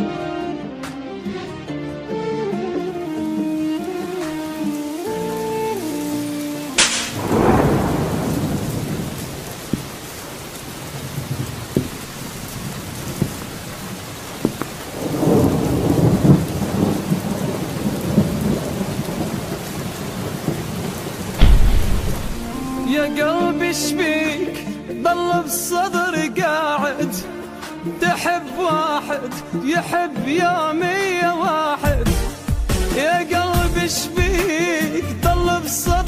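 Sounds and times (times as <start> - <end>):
instrumental music: 0.0 - 9.1, 21.4 - 36.0
rain hissing: 2.8 - 23.5
thunder: 6.8 - 10.0, 14.9 - 23.2.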